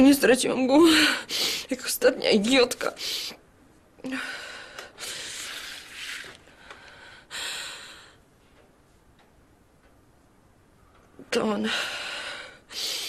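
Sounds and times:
woman breathing unevenly: 0:06.4 - 0:08.2, 0:11.6 - 0:13.0.

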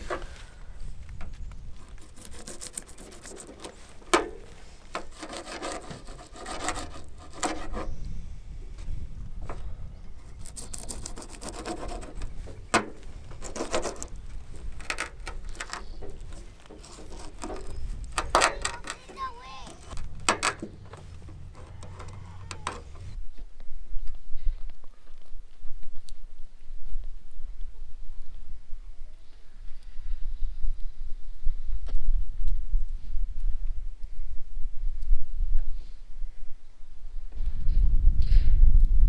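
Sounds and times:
knife rasping through fish: 0:01.9 - 0:04.0, 0:05.0 - 0:07.9, 0:10.4 - 0:12.3, 0:13.4 - 0:14.1.

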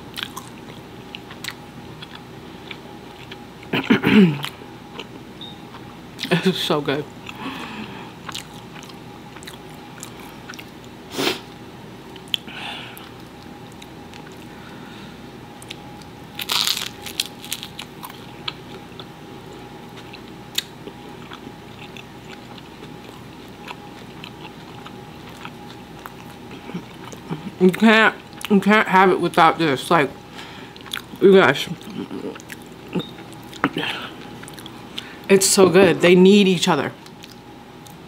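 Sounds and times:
chewing with mouth clicks: 0:00.1 - 0:03.8, 0:08.2 - 0:11.0, 0:12.1 - 0:14.5, 0:20.0 - 0:28.5, 0:30.7 - 0:35.1, 0:37.0 - 0:38.0.

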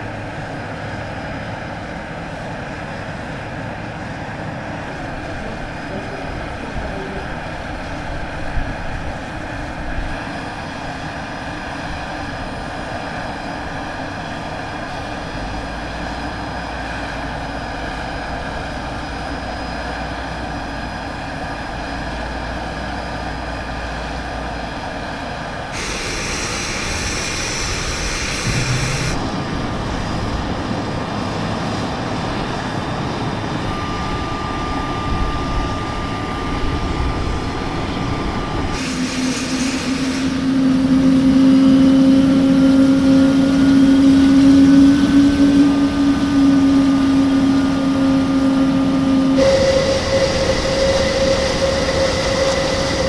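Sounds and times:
aircraft engines humming: 0:00.0 - 0:53.0
truck engine drone: 0:00.0 - 0:53.0
hissing bursts: 0:25.8 - 0:29.2, 0:38.8 - 0:40.6, 0:49.4 - 0:53.0.

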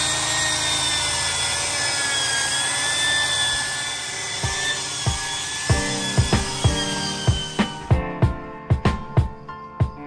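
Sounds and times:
wire wheel grinder on metal: 0:00.0 - 0:08.0.

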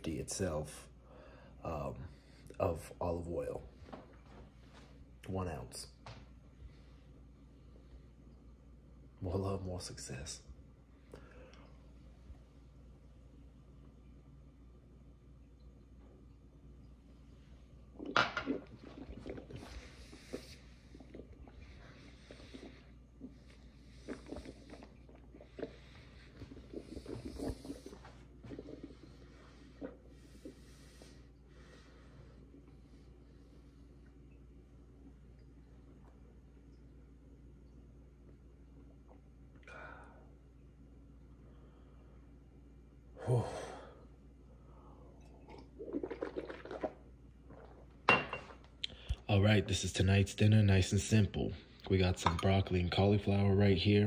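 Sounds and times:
person gulping and swallowing: 0:17.8 - 0:30.6, 0:45.1 - 0:49.2.

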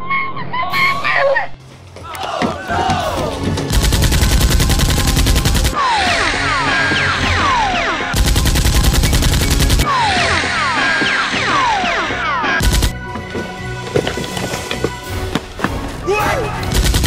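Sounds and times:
machine-gun fire: 0:03.7 - 0:05.8, 0:07.4 - 0:10.5, 0:12.6 - 0:13.0, 0:16.7 - 0:17.0.

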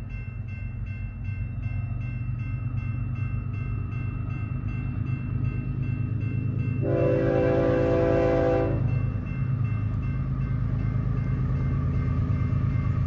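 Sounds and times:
train air horn blast: 0:06.8 - 0:08.9.

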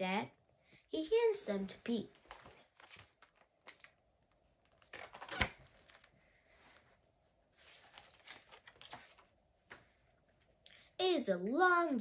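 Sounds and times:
book pages rustling: 0:01.6 - 0:10.6.

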